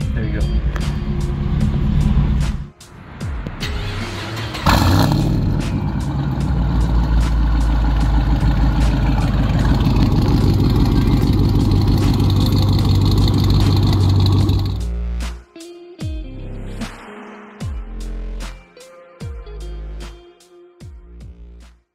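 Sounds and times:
car engine starting: 0:00.1 - 0:14.9
deep engine idle: 0:04.6 - 0:14.9.

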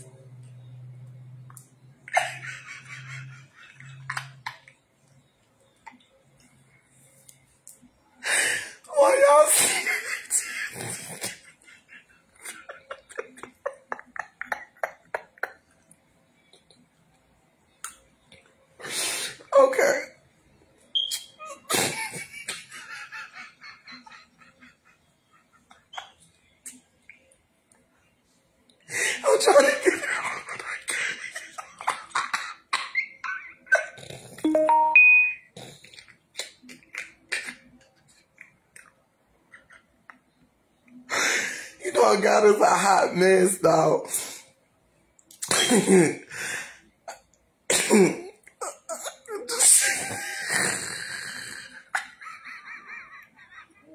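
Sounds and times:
woman stifled laughter: 0:02.1 - 0:04.5, 0:09.6 - 0:15.6, 0:51.9 - 0:53.9
woman giggling: 0:09.5 - 0:15.7, 0:21.4 - 0:26.2, 0:51.9 - 0:53.9
woman squealing laugh: 0:52.0 - 0:53.9.

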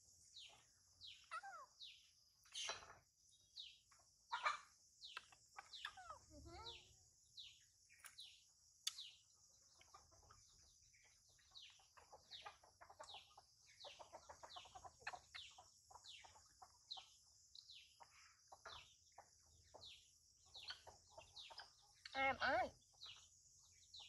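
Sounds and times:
birds chirping: 0:00.0 - 0:24.0.

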